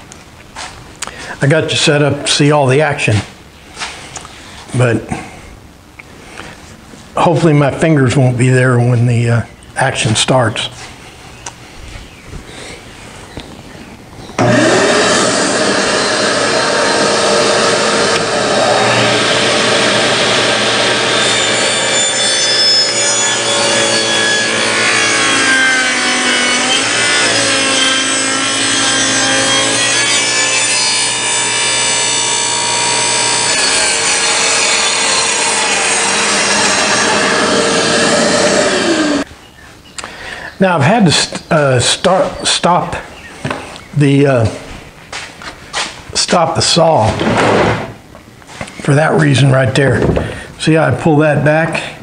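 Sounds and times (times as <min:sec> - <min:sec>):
table saw ripping wood: 0:14.4 - 0:39.3, 0:47.0 - 0:48.0.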